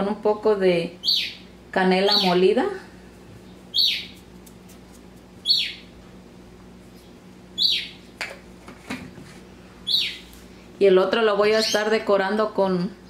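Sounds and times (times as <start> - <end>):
bird chirping downward: 1.0 - 2.4, 3.5 - 4.2, 5.4 - 5.9, 7.0 - 8.0, 9.8 - 10.3.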